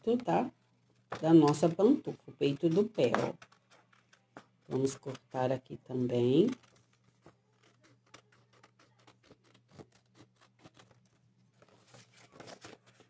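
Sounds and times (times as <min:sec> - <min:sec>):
scissors snipping paper: 0:02.4 - 0:05.4, 0:06.1 - 0:13.0.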